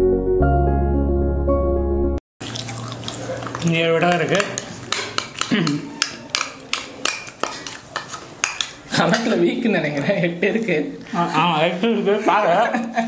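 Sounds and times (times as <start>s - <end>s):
spoon scraping plastic cup: 2.6s - 8.8s
person humming: 5.5s - 6.0s.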